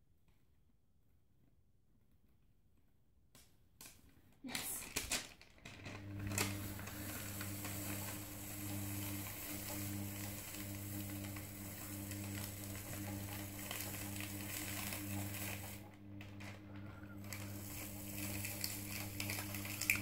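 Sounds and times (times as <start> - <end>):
low electrical hum: 4.0 - 20.0
crackling and hiss: 6.2 - 15.8, 17.2 - 20.0.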